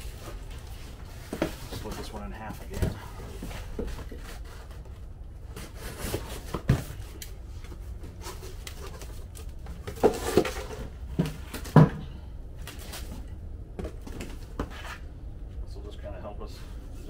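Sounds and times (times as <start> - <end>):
cardboard rustling and scraping: 0.0 - 12.0, 12.6 - 15.0.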